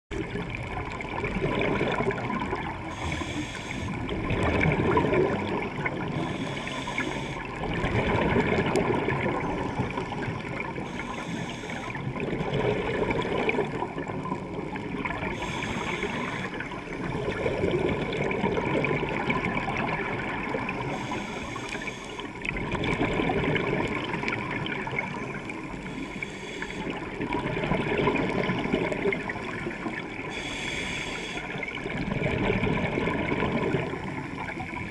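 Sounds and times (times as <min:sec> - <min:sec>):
bubbles rising underwater: 0:00.1 - 0:11.1, 0:11.8 - 0:25.9, 0:26.9 - 0:30.3, 0:31.5 - 0:34.9
regulator inhale hiss: 0:02.7 - 0:04.2, 0:06.0 - 0:07.7, 0:09.6 - 0:12.2, 0:15.3 - 0:17.0, 0:20.7 - 0:22.5, 0:25.6 - 0:27.1, 0:29.0 - 0:31.8.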